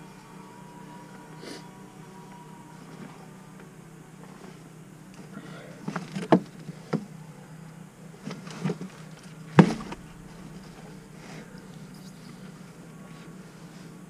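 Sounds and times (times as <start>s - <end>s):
gear knocking and rustling: 8.2s - 13.4s.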